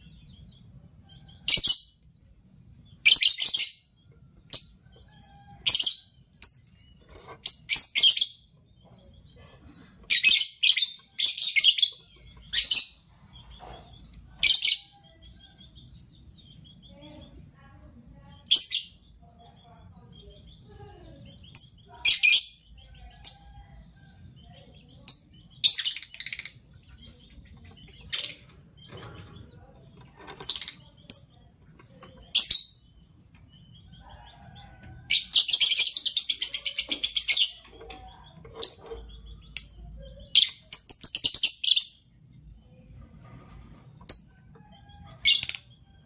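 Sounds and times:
lovebirds chirping shrilly: 35.1s - 42.2s, 44.1s - 45.8s.

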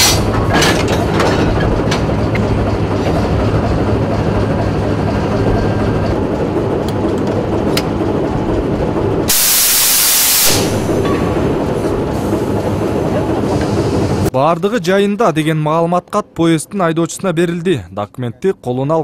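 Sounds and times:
locomotive engine idling: 0.0s - 14.3s
loud even hiss: 9.3s - 11.0s.

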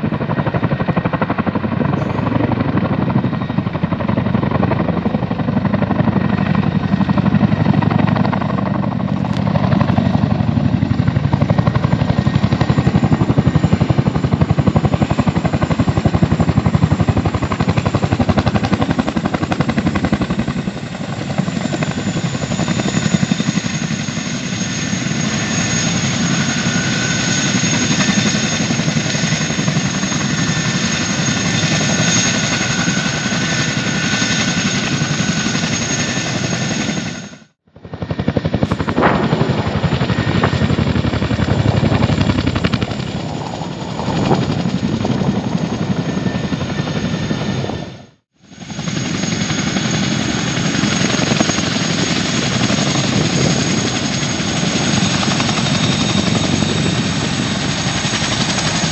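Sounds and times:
helicopter rotor blades beating: 0.0s - 58.9s
high turbine whine: 18.0s - 48.0s.

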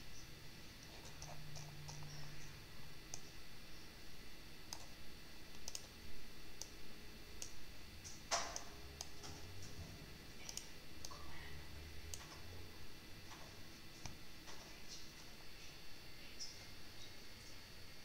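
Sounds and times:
computer mouse clicking: 0.8s - 2.2s, 4.7s - 6.0s, 6.6s - 6.8s, 7.4s - 9.4s, 10.4s - 11.2s, 12.1s - 12.4s, 14.0s - 14.6s.

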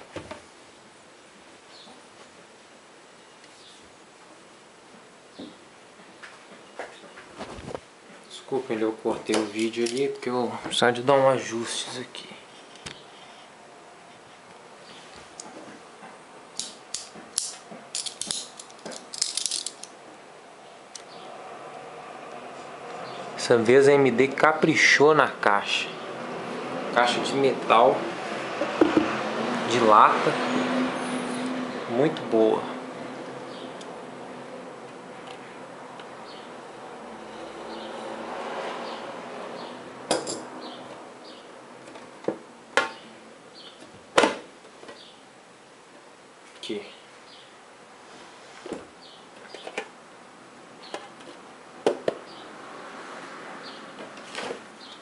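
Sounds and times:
metal tin clicks and rattles: 17.4s - 19.9s.

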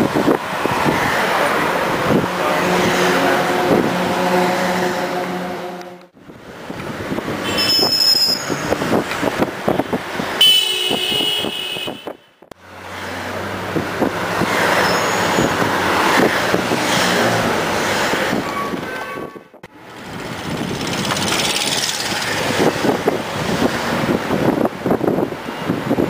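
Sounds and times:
passing vehicles rattling: 0.0s - 26.0s
short high horn toot: 2.2s - 6.1s, 7.4s - 8.5s.

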